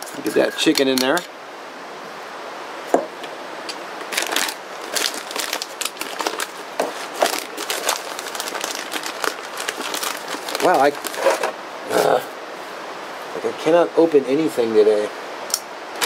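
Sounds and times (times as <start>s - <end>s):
packet crinkling and crackling: 4.0s - 11.5s.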